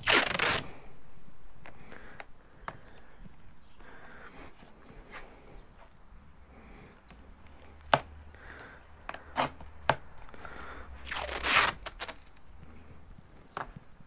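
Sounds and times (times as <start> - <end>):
tape clicking and crinkling: 0.0 - 0.8, 7.0 - 14.0
masking tape ripping: 0.0 - 0.9, 11.0 - 12.5.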